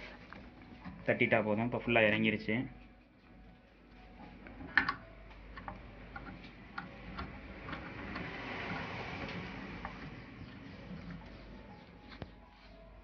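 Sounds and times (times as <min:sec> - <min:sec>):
metal clicks and ticks: 0:04.6 - 0:10.1.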